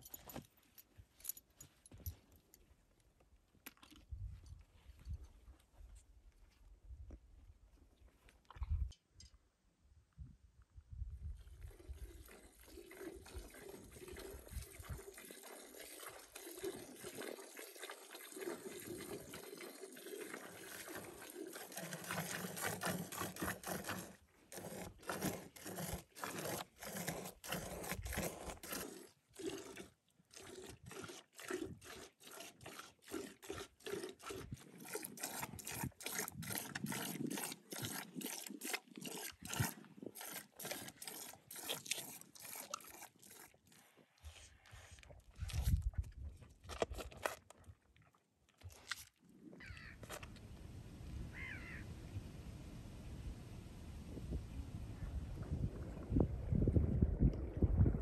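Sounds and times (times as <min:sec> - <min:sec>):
background noise: 0:00.0 - 0:56.2
milk squirting into bucket: 0:11.4 - 0:44.4, 0:45.0 - 0:50.4.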